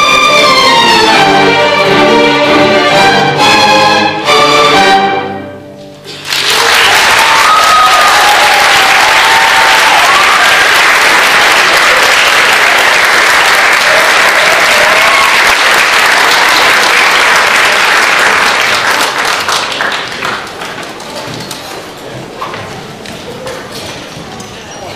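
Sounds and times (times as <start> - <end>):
audience applauding: 6.1 - 21.2.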